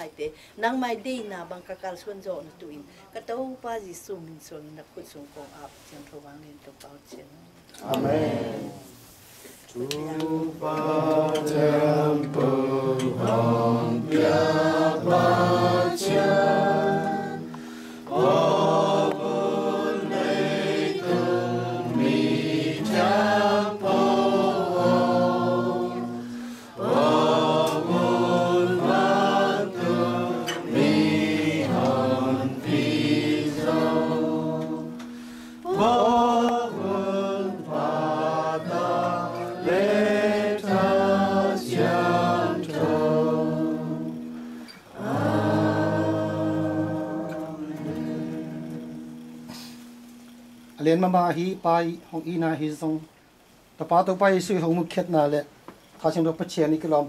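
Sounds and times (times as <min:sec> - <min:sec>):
group singing a hymn: 0:07.8 - 0:50.5.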